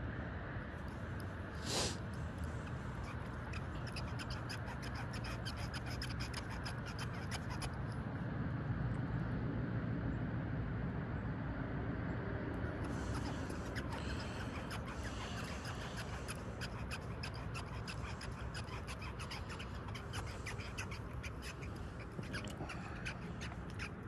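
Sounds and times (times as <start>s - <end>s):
light scratching: 0.9s - 8.0s, 12.7s - 24.0s.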